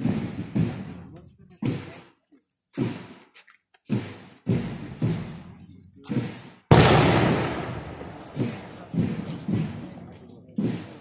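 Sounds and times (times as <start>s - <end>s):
sharp loud bangs: 6.7s - 11.0s.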